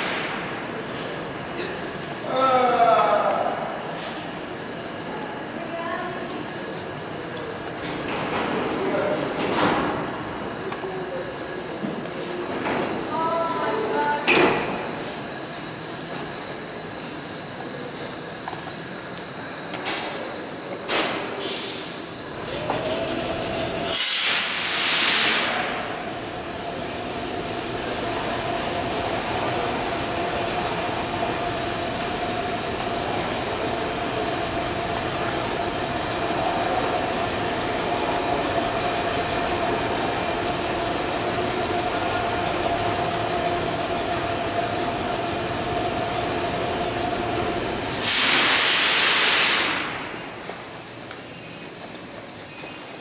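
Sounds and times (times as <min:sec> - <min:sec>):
air hiss: 0:00.0 - 0:02.3, 0:03.8 - 0:04.8, 0:23.8 - 0:25.9, 0:47.8 - 0:50.3
subway train humming: 0:00.0 - 0:53.0.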